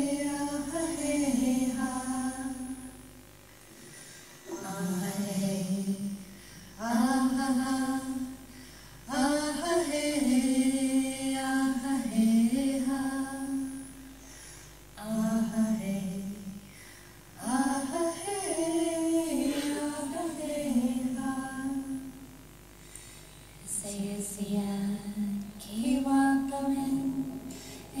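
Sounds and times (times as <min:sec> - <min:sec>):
chant-like singing over loudspeakers: 0:00.0 - 0:03.0, 0:04.4 - 0:08.5, 0:09.1 - 0:14.0, 0:17.4 - 0:22.2, 0:23.6 - 0:28.0.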